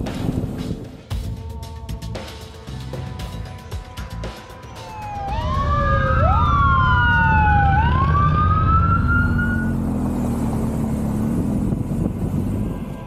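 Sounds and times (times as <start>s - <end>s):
low engine rumble: 1.2s - 13.0s
police sirens wailing: 4.6s - 9.8s.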